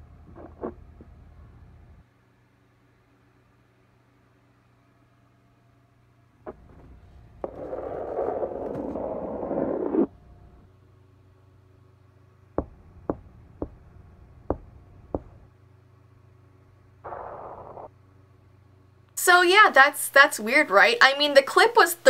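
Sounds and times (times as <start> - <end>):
steady hum: 0.0 - 20.9
scratching and scraping in wall: 6.5 - 10.1
sharp knocks: 12.6 - 13.9, 14.5 - 15.4.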